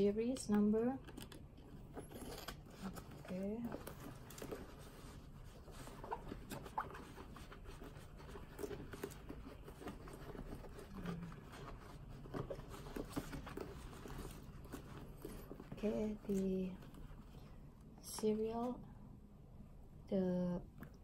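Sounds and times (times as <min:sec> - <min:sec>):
hands rustling leather bag: 0:01.8 - 0:17.4.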